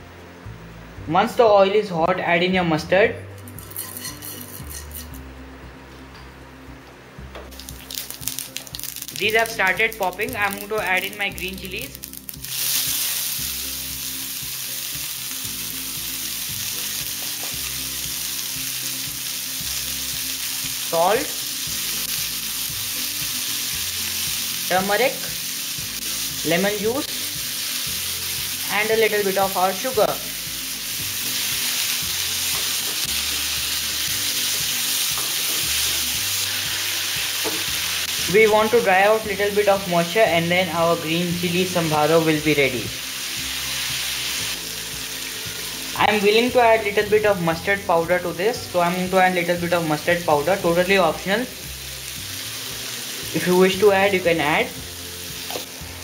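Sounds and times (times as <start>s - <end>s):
chilies sizzling in hot oil: 3.2s - 5.3s, 7.5s - 56.0s.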